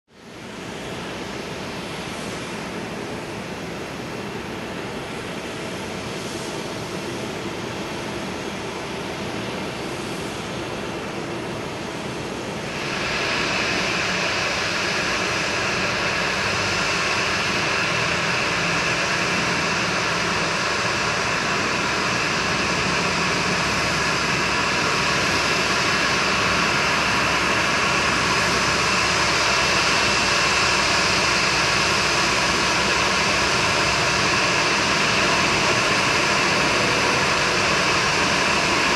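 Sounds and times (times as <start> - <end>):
jet engines humming with whine: 0.1 - 38.9.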